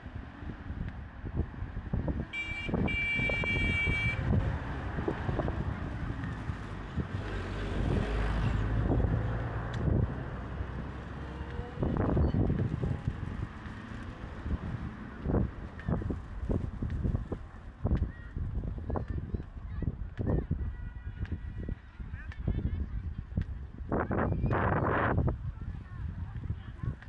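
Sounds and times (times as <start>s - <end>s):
high-pitched vehicle horn: 2.3s - 4.3s
vehicle engine rumble passing: 4.2s - 17.8s.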